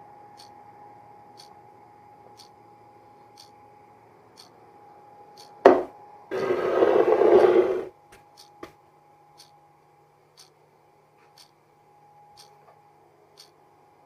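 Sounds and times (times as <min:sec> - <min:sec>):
plastic jar lid grinding: 0:06.3 - 0:07.9
soft ticking: 0:09.4 - 0:09.6, 0:12.4 - 0:12.6, 0:13.4 - 0:13.6.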